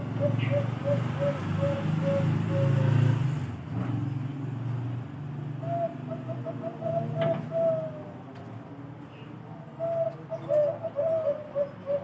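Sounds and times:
dove cooing: 0.0s - 3.4s, 5.6s - 8.3s, 9.2s - 12.0s.

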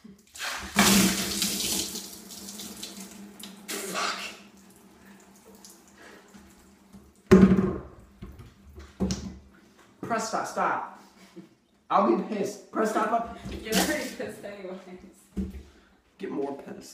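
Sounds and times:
water trickling and dripping: 0.1s - 7.3s
water splashing: 0.3s - 6.3s.

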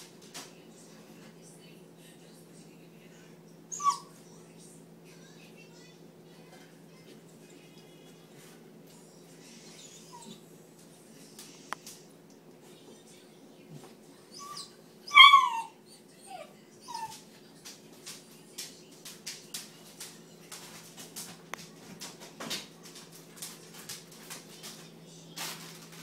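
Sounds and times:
puppy whining and yelping: 3.7s - 4.2s, 9.8s - 10.5s, 14.3s - 17.2s.

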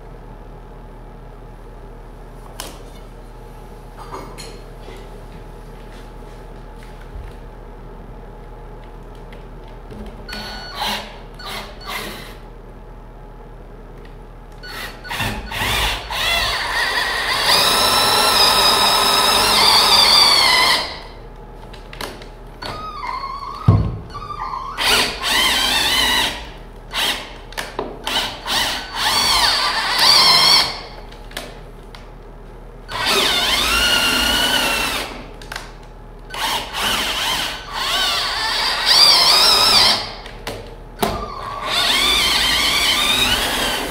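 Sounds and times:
cordless drill motor whine: 10.3s - 12.4s, 14.6s - 21.2s, 22.6s - 27.3s, 28.1s - 31.0s, 32.9s - 35.2s, 36.3s - 40.3s, 41.1s - 43.9s.

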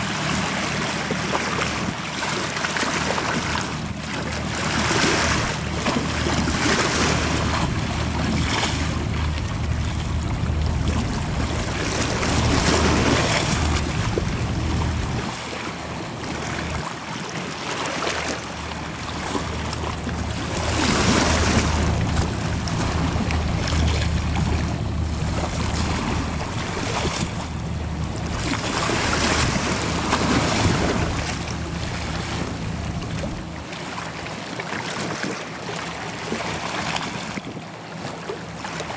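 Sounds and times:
ferry engines droning: 3.0s - 16.8s, 18.3s - 34.2s
bow wave and spray rushing: 3.1s - 15.6s, 18.9s - 33.6s.

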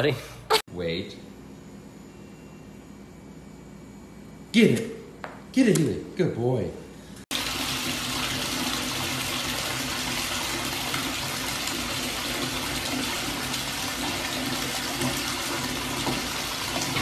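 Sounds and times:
water splashing into bathtub: 7.3s - 17.0s.

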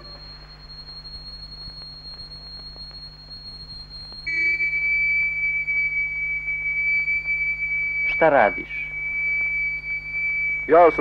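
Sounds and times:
faint higher tone: 0.0s - 2.1s
high-pitched electronic whine: 0.0s - 11.0s
low mains hum: 0.0s - 11.0s.

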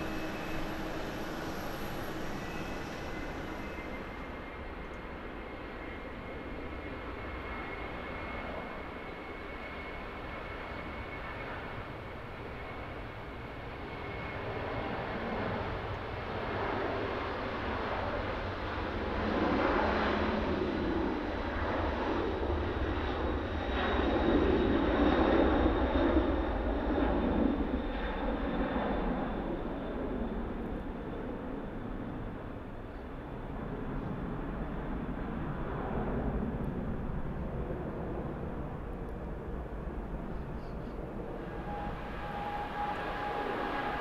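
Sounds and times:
jet airliner taking off: 0.0s - 44.0s.

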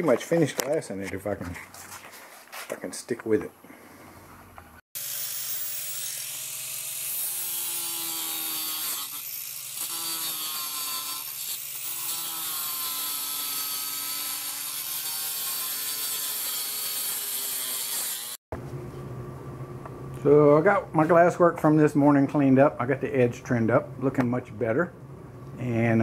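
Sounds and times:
angle grinder grinding fiberglass: 5.0s - 18.4s.

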